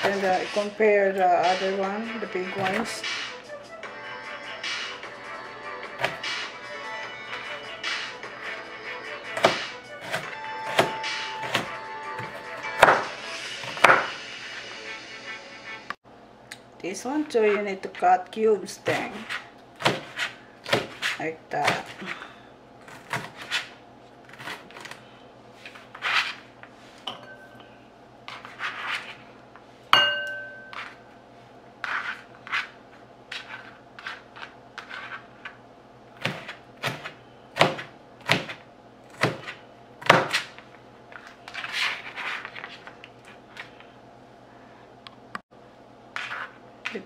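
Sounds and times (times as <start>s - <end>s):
knife chopping on cutting board: 2.6s - 3.0s, 9.4s - 14.1s, 18.9s - 22.1s, 22.9s - 23.7s, 36.2s - 40.5s
knife scraping board: 18.8s - 22.2s, 22.9s - 25.0s, 25.6s - 26.6s, 28.3s - 29.3s, 31.8s - 35.6s, 41.2s - 42.9s, 46.2s - 47.0s
ringing clink: 30.0s - 30.7s.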